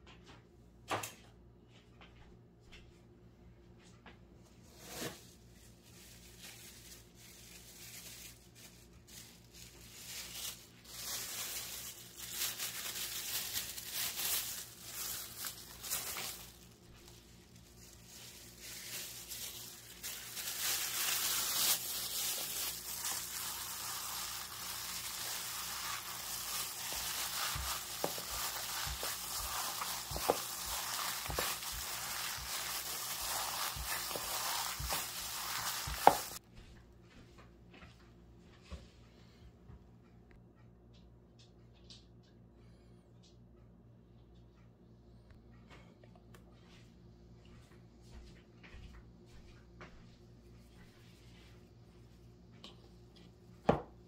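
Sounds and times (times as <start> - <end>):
plastic bag crinkling: 5.5 - 36.4
hand kneading raw meat: 5.9 - 36.4.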